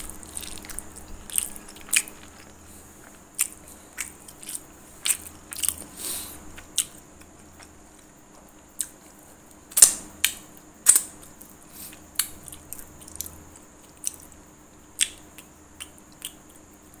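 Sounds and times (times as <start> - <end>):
wet lip smacks and chewing clicks: 15.0 - 16.7.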